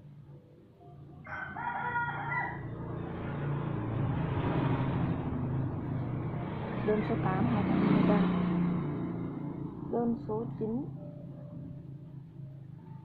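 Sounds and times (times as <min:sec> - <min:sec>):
motor vehicle approaching: 0:00.0 - 0:13.0
rooster crowing: 0:01.2 - 0:03.0.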